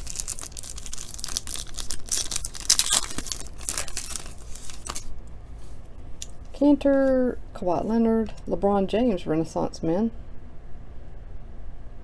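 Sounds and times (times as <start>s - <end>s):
foil wrapper tearing and crinkling: 0.0s - 5.1s.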